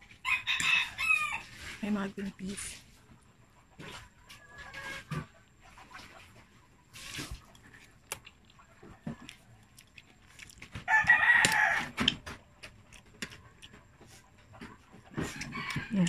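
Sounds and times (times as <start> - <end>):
rooster crowing: 0.2 - 1.5, 10.8 - 12.1
person eating noodles: 9.2 - 12.2.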